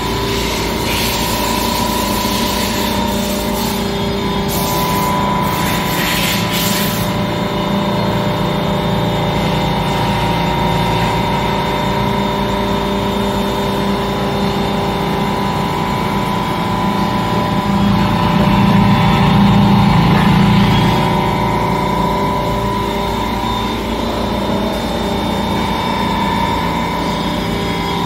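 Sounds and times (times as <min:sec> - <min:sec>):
machine hum with whine: 0:00.0 - 0:28.0.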